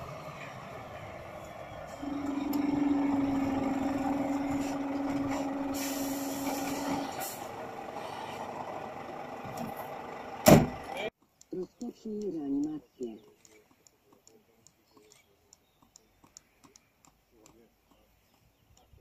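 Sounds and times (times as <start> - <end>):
fire engine diesel engine: 0.0 - 11.1
air brakes hiss: 5.6 - 7.5.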